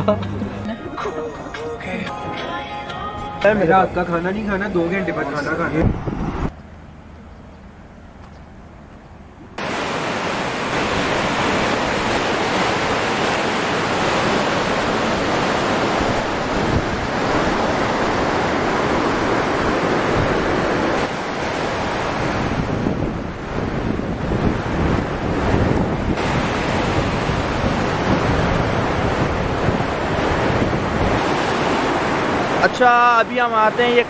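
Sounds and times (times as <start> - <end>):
river water rushing: 9.6 - 34.0.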